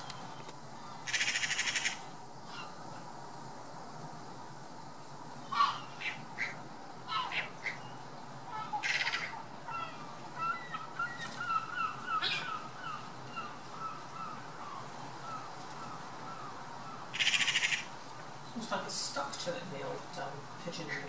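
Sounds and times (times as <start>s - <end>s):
magpie rattling chatter: 1.0s - 2.0s, 8.6s - 13.5s, 17.1s - 18.0s
bird chirping: 5.6s - 18.0s.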